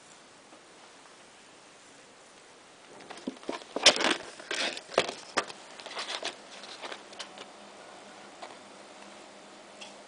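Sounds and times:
plastic packaging clicks and rustles: 2.9 - 7.5.

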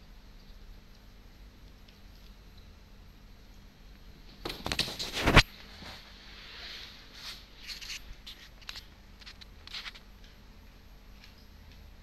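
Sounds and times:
cardboard rustling and clicks: 4.5 - 5.5.

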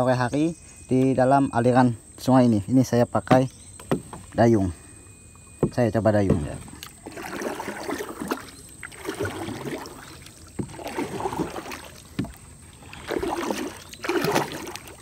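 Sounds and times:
sharp knocks on wooden boat: 3.2 - 4.4, 5.6 - 6.9, 10.6 - 12.4
paddle splashing in water: 5.5 - 15.0.

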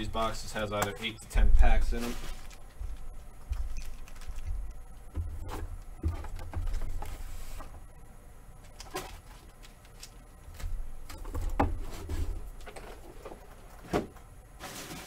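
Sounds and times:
cardboard rubbing and shuffling: 1.7 - 3.3, 5.3 - 7.8, 11.7 - 15.0
cardboard boxes tapping and knocking: 4.5 - 7.0.

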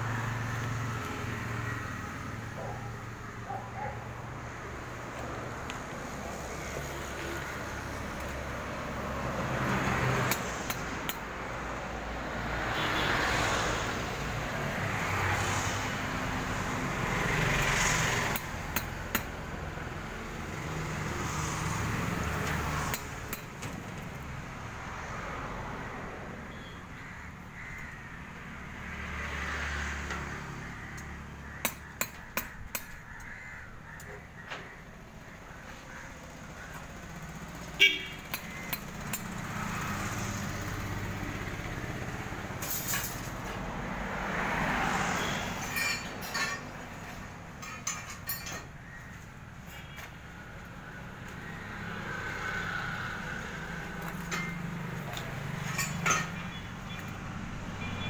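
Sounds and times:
crows cawing: 26.5 - 28.6, 30.4 - 37.1, 48.3 - 50.0.

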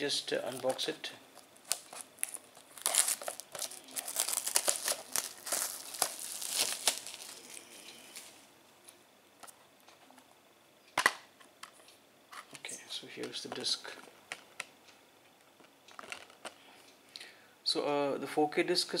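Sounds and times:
plastic wrap crinkling and tearing: 1.6 - 8.4, 15.9 - 16.6.

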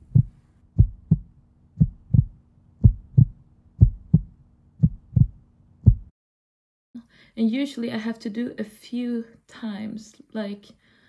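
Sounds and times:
heartbeat thumps: 0.0 - 6.1.

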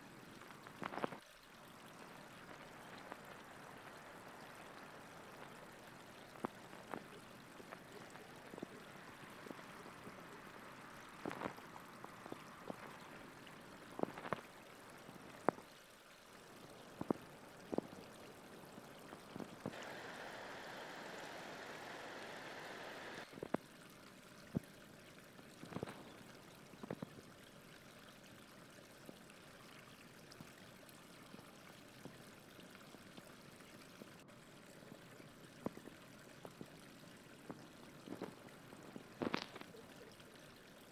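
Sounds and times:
steady hiss: 16.9 - 23.5.

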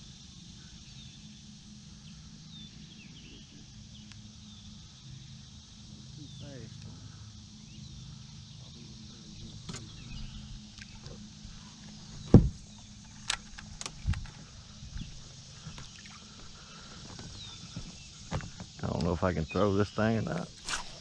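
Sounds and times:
steady low hum: 0.0 - 21.0
loud thump: 12.3 - 12.6.

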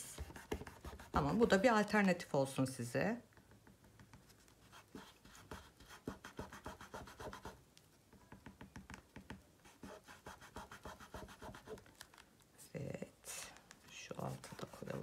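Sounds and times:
pencil scratching on paper: 0.0 - 1.6, 4.3 - 7.6, 9.6 - 11.8, 14.2 - 15.0.

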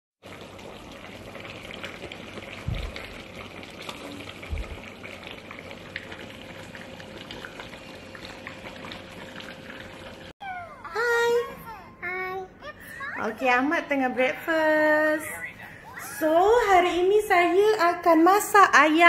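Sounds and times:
food sizzling in a pan: 0.2 - 10.3
low thumps: 2.6 - 3.2.

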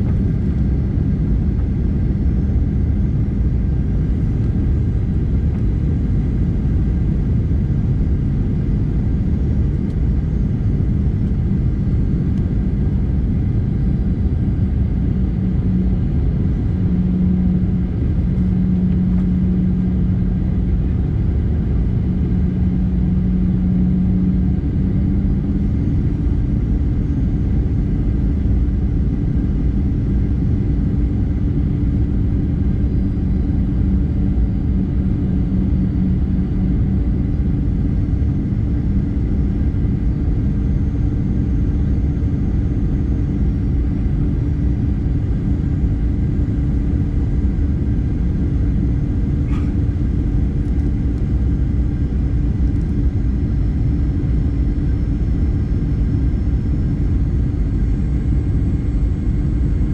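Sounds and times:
jet cabin engine rumble: 0.0 - 59.9
low hum: 0.0 - 59.9.

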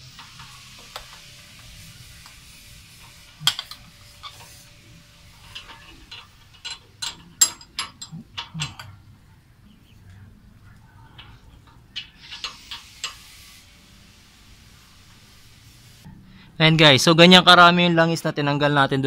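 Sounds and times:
wrench clicking on metal: 5.4 - 9.0, 11.2 - 13.3.

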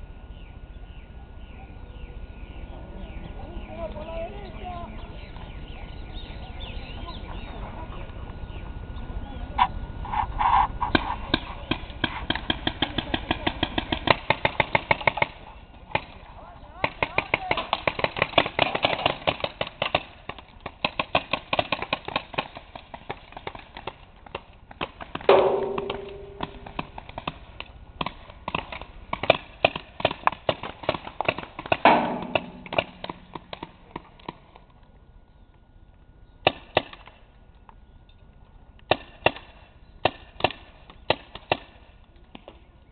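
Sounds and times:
paintball markers firing: 10.9 - 16.2, 16.8 - 34.4, 36.4 - 37.2, 38.8 - 42.6
ringing hit with drawn-out tone: 25.3 - 26.8, 31.9 - 33.5.

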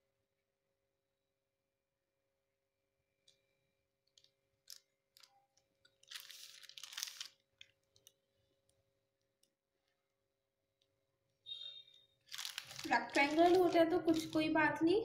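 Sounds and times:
plastic sheet crinkling: 3.4 - 10.0, 11.8 - 15.0.

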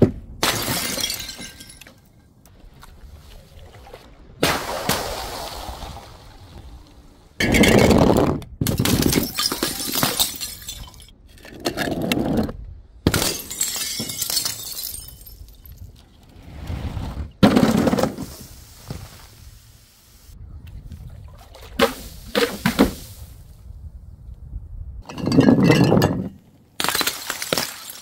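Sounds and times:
glass bottles shattering: 0.4 - 2.1, 8.7 - 11.1, 13.1 - 16.0, 25.0 - 28.0.

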